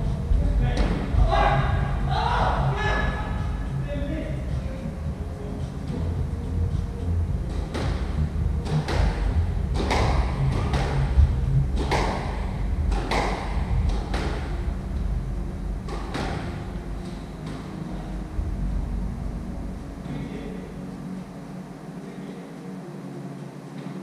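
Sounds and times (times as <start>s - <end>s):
low rumble: 0.0s - 23.2s
squash ball hits echoing: 7.5s - 14.6s, 15.8s - 17.8s.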